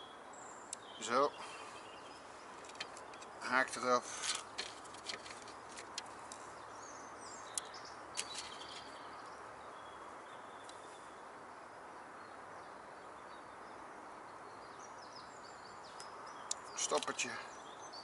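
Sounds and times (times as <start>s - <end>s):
birds chirping: 0.0s - 18.0s
outdoor background hiss: 0.0s - 18.0s
sharp clicks: 16.0s - 17.3s.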